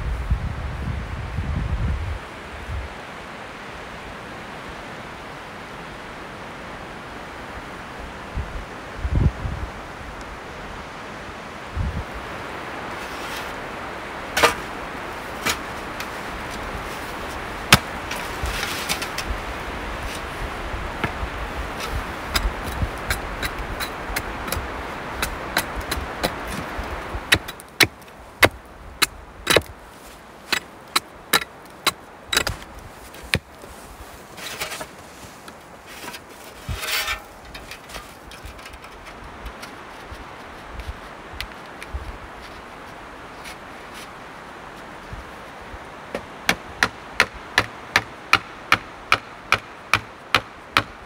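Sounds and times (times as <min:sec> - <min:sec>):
wind: 0:00.0 - 0:51.0
shovel scraping snow: 0:12.9 - 0:13.6, 0:14.4 - 0:27.7, 0:29.5 - 0:39.0
snow shovel striking: 0:12.9 - 0:13.6, 0:14.4 - 0:19.3, 0:21.0 - 0:29.7, 0:30.4 - 0:33.6, 0:34.2 - 0:38.6.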